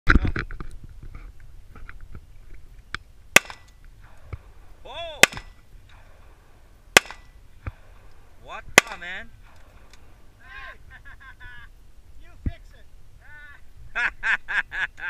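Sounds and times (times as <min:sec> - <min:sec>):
handgun shots: 0:03.4 - 0:04.2, 0:05.2 - 0:05.6, 0:07.0 - 0:07.4, 0:08.8 - 0:09.7.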